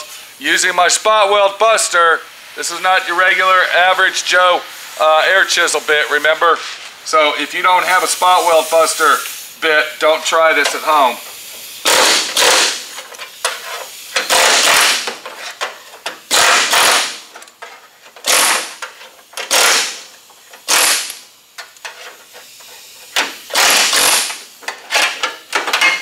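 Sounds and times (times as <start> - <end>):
air chisel hammering sheet steel: 11.8 - 12.9, 14.2 - 15.2, 16.3 - 17.3, 18.2 - 18.8, 19.4 - 21.2, 23.5 - 25.2.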